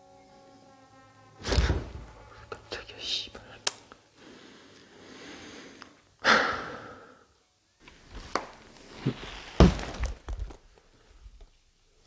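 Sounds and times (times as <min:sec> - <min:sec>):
footsteps and objects knocking: 0:08.2 - 0:10.6.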